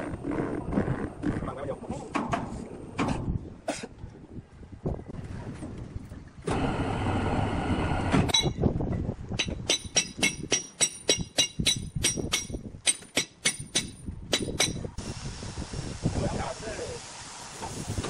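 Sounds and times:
hammer striking steel: 0:09.4 - 0:14.8.

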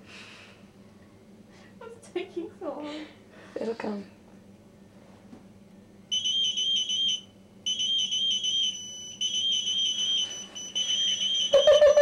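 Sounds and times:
electronic alarm pulsing beep: 0:06.1 - 0:12.0.

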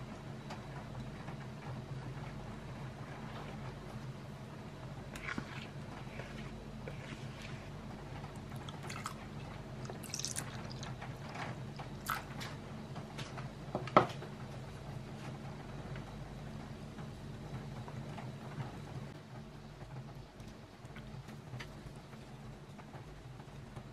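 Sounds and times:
low steady hum: 0:00.0 - 0:23.9
milk splashing and dripping: 0:08.5 - 0:11.0.

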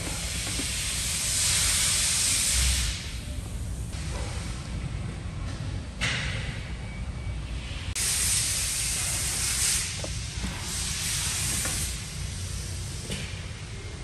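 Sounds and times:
steady hiss: 0:00.0 - 0:04.0, 0:07.9 - 0:14.0.

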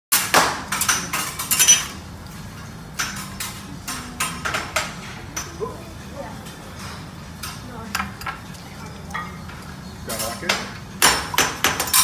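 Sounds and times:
metal spatula clanging on griddle: 0:10.1 - 0:12.0.

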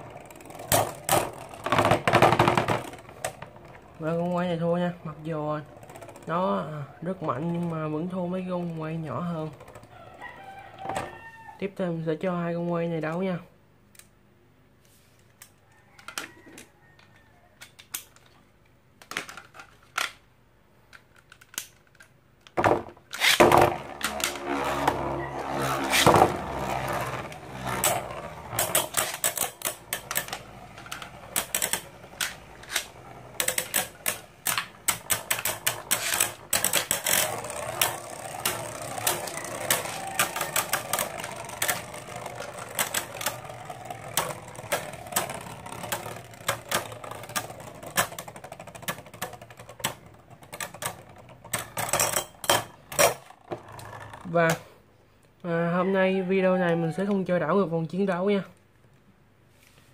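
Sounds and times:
spinning tops whirring: 0:00.0 - 0:11.0, 0:23.1 - 0:54.3
tops clacking together: 0:22.5 - 0:54.7.

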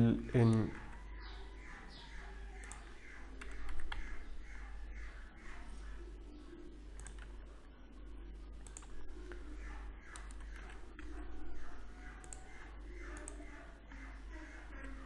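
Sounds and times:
low steady hum: 0:00.0 - 0:15.0
mouse clicks: 0:00.5 - 0:04.2, 0:07.0 - 0:07.3, 0:08.6 - 0:14.0
keyboard keystrokes: 0:07.0 - 0:07.3, 0:08.6 - 0:08.9.

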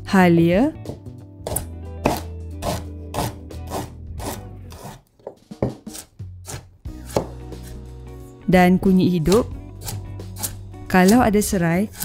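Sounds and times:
knife chopping on wooden board: 0:00.8 - 0:07.8, 0:09.3 - 0:11.2.

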